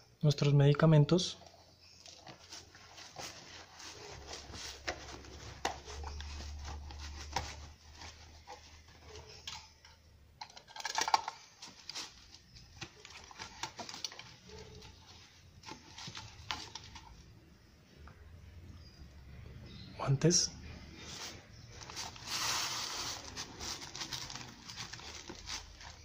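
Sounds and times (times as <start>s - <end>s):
metal tin clatter: 10.4s - 11.4s.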